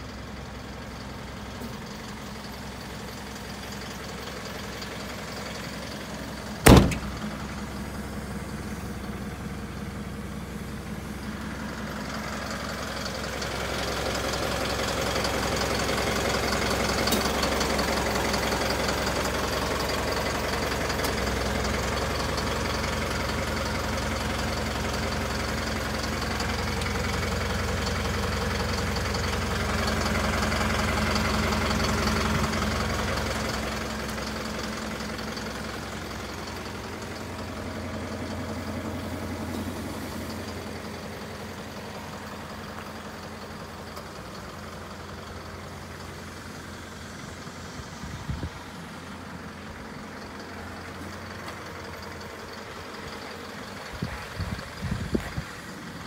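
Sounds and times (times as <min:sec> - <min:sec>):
truck engine idling: 0:00.0 - 0:56.0
cab door slamming: 0:06.6 - 0:07.3.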